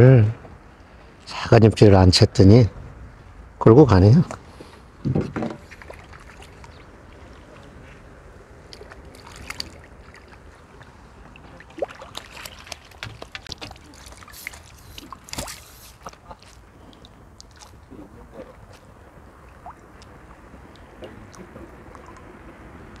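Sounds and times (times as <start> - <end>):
fish splashing in water: 5.6 - 7.2, 8.7 - 17.9.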